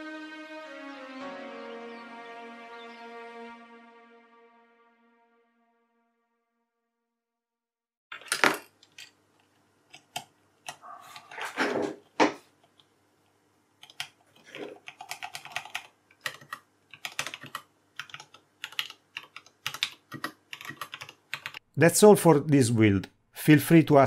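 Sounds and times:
mechanical keyboard typing: 0:13.8 - 0:21.6.

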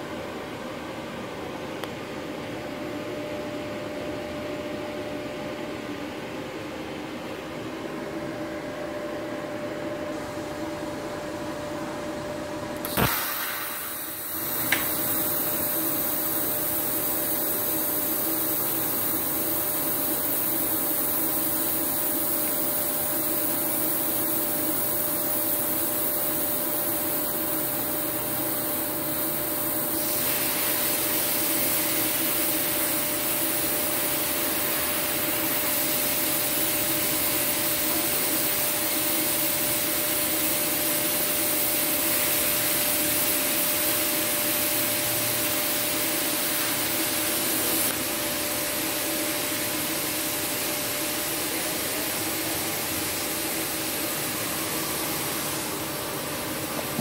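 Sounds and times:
welding arc hissing: 0:12.8 - 0:57.0.

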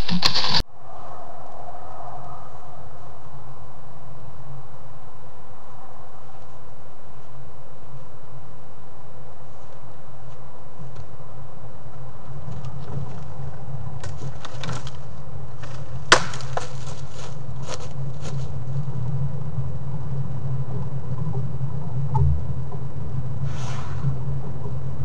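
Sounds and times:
steady low hum: 0:00.0 - 0:25.0
twigs snapping and crackling: 0:14.0 - 0:18.4.

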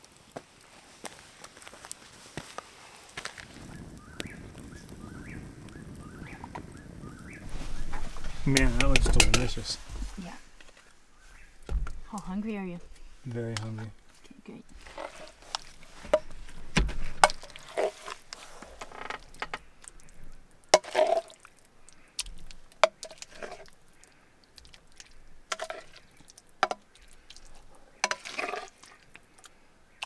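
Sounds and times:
metal spoon scraping a pan: 0:14.8 - 0:16.3, 0:17.2 - 0:18.6, 0:20.8 - 0:21.3, 0:22.8 - 0:23.7, 0:25.4 - 0:26.8, 0:27.6 - 0:29.0.

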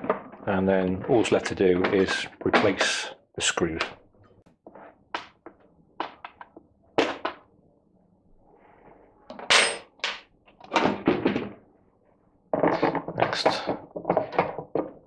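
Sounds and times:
plastic parts knocking and thudding: 0:00.0 - 0:03.0, 0:04.6 - 0:07.5, 0:09.3 - 0:11.7, 0:12.5 - 0:15.0.

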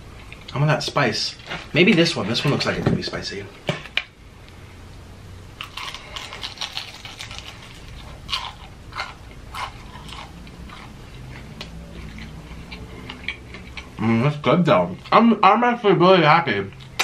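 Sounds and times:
crispy fried chicken chewing: 0:05.6 - 0:14.0.

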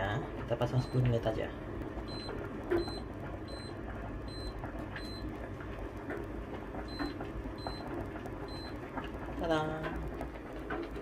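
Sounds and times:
kitchen timer beeps: 0:00.0 - 0:05.4, 0:06.7 - 0:09.7.

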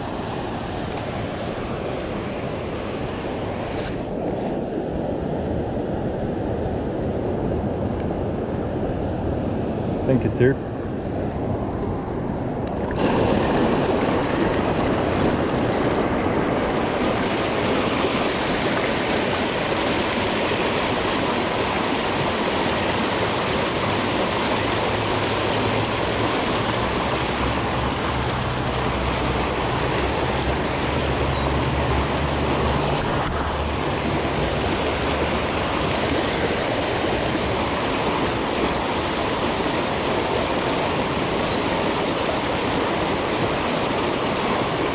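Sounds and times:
water rushing over a dam spillway: 0:12.8 - 0:44.9.

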